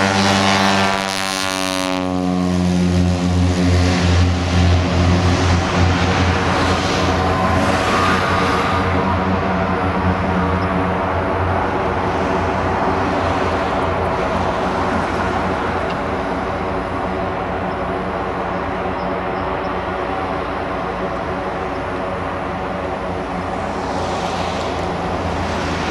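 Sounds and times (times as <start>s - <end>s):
propeller plane engine drone: 0.0s - 25.9s
hiss: 23.6s - 25.9s.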